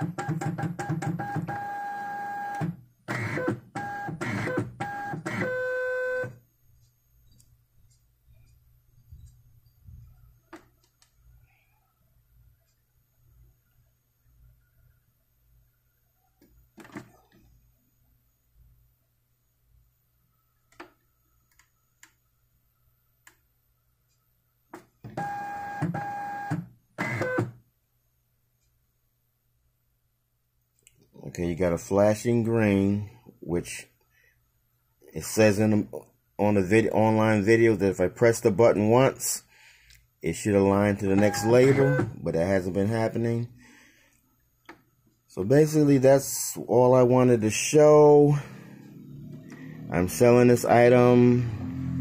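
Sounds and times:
label printer motor whining: 0.1s - 6.3s, 41.1s - 42.2s.

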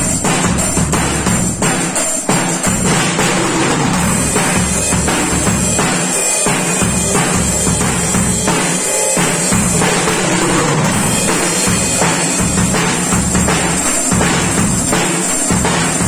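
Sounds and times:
cymbals: 0.0s - 16.0s
drum kit played with sticks: 0.0s - 16.0s
backing song with bass line: 2.8s - 6.0s.

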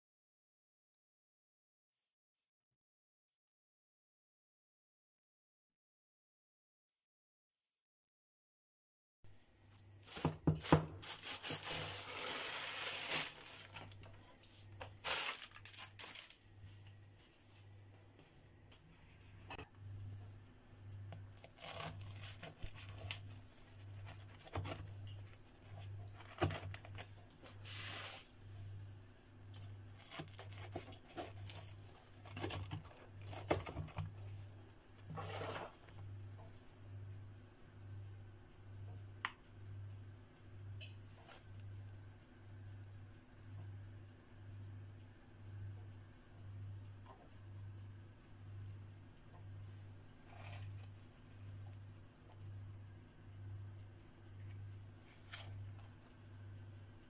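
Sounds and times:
rustling: 10.0s - 17.0s
steady low hum: 11.0s - 57.0s
knife crunching through crust: 21.4s - 23.0s.

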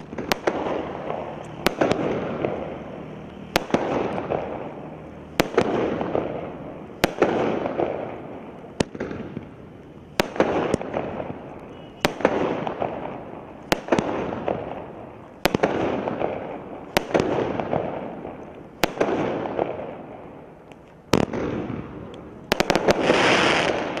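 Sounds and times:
loud firework burst: 0.0s - 18.2s, 21.2s - 24.0s
firework shots banging: 0.0s - 24.0s
hiss of firework burst: 22.7s - 24.0s.

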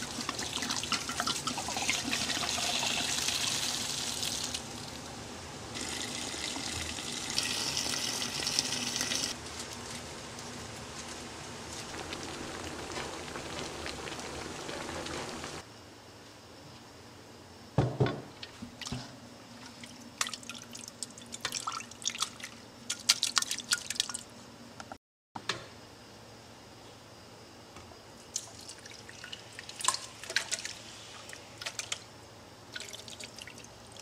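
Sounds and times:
liquid simmering in pot: 0.0s - 15.6s, 28.4s - 32.0s.

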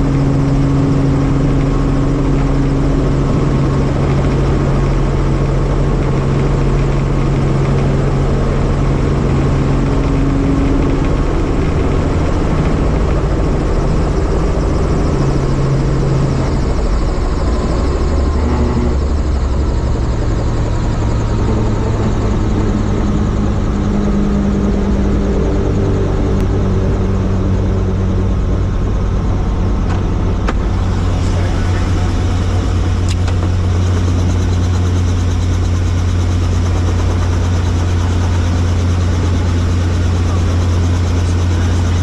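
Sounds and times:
helicopter rotor drone: 0.0s - 42.0s.

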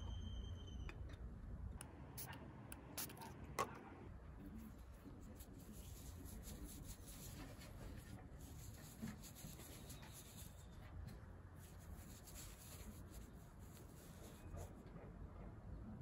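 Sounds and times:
marker squeaking on metal: 8.6s - 10.8s.

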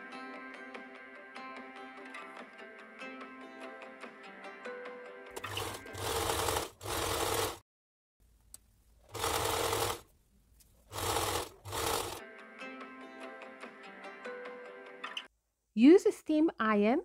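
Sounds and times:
sewing machine stitching: 5.4s - 7.6s, 9.1s - 10.1s, 10.8s - 12.2s.

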